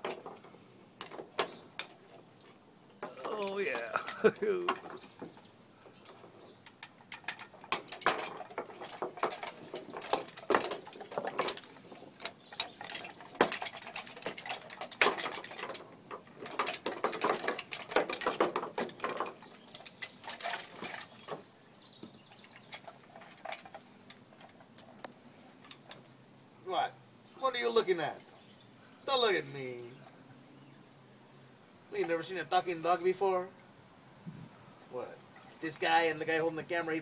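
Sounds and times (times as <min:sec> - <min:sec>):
wooden legs tapping on boards: 0:07.6 - 0:19.9.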